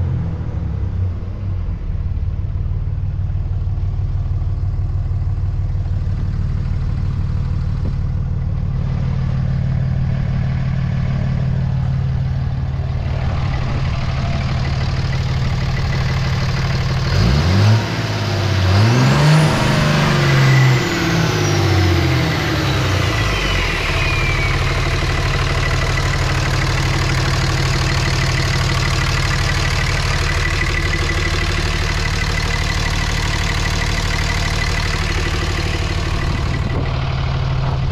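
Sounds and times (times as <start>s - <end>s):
diesel engine idling and revving: 0.0s - 37.9s
turbo whistle: 20.2s - 26.4s.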